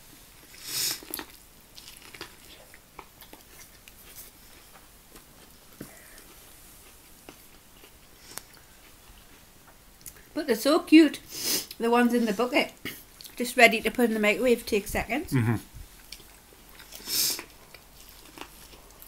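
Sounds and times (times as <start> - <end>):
chewing with clicks and smacks: 0.4 - 10.3, 12.8 - 13.4, 16.0 - 19.0.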